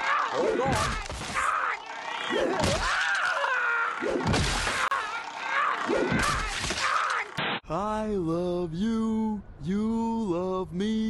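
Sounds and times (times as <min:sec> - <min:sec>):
voices crying out: 0:00.0 - 0:07.4.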